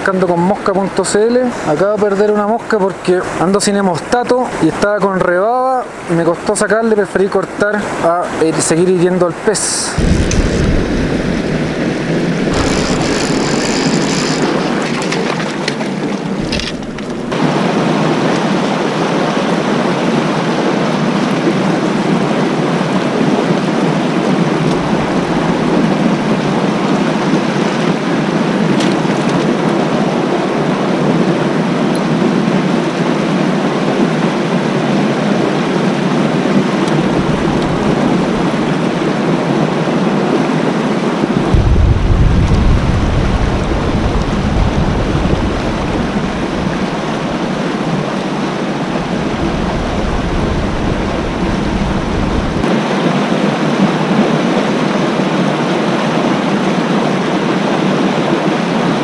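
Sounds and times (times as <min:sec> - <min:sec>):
stream rushing over rocks: 0:09.9 - 0:59.0.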